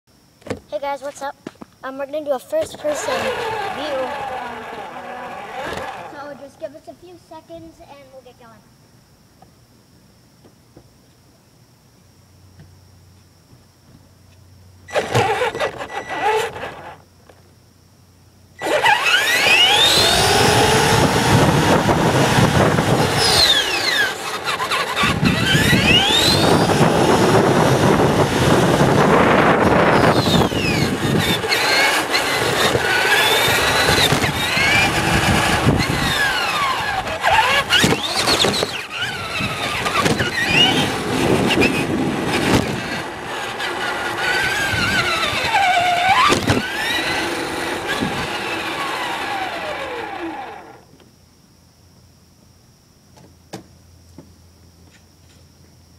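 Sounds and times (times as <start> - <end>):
electric motor whine: 2.8 - 6.4, 14.8 - 17.4, 18.6 - 50.9
tyres rumbling on asphalt: 18.6 - 50.3.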